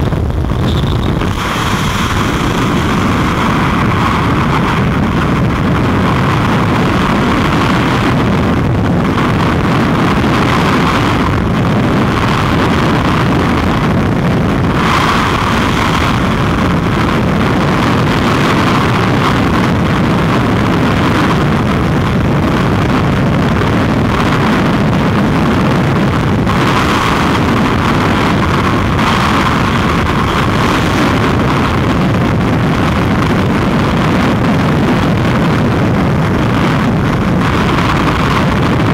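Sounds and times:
freefall wind roaring on microphone: 0.0 - 38.9.

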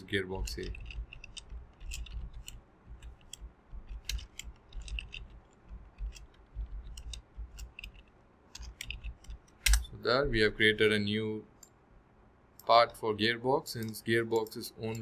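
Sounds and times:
keyboard typing: 0.4 - 9.8
soft low thuds: 5.2 - 7.7.

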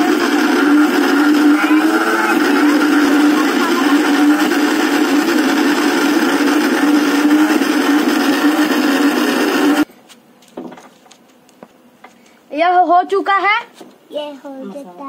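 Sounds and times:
mixer grinder humming: 0.0 - 9.9.

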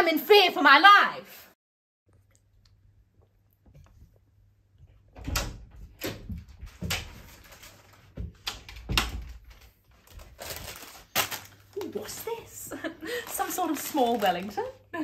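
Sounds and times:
wooden door opening: 5.1 - 7.2.

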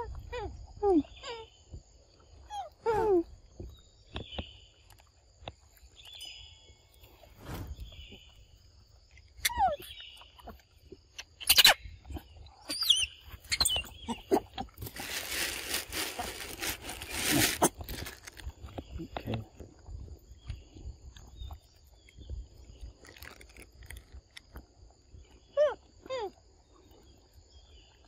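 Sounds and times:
rustling: 14.6 - 18.8.

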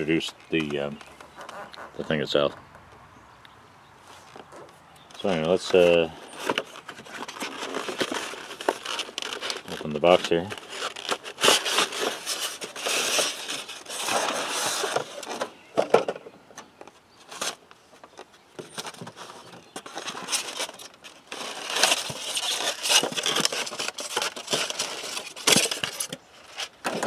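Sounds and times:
cardboard and foam rustling: 4.1 - 16.0, 17.2 - 27.0.

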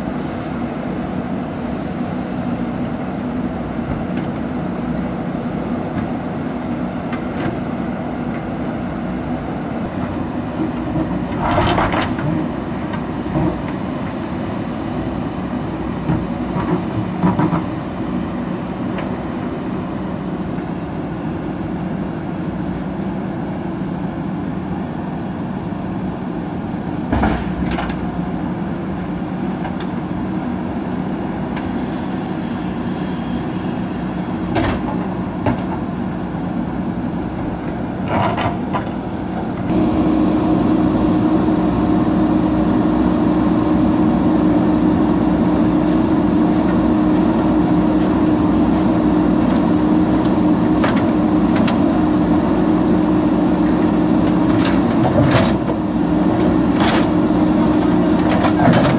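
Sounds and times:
diesel engines running: 0.0 - 58.9.

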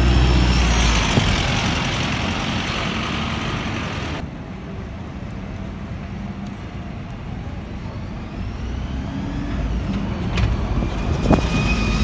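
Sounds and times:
distant bus engine running: 0.0 - 4.2
bus engine pulling away: 0.0 - 12.0
street traffic: 0.0 - 12.0.

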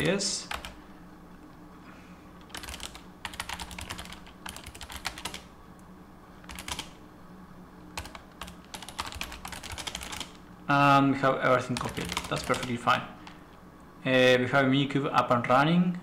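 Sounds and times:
computer keyboard typing: 0.0 - 0.8, 2.4 - 5.5, 6.4 - 7.0, 8.0 - 10.4, 11.7 - 12.8.

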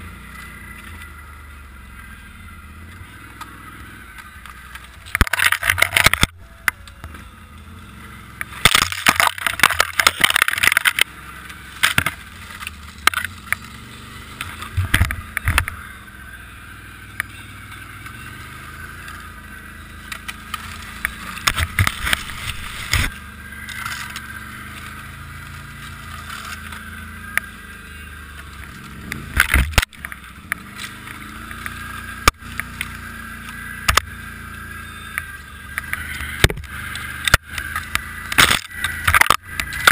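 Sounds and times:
snowmobile engine running: 0.0 - 39.9
branches and snow crackling: 8.4 - 39.9.

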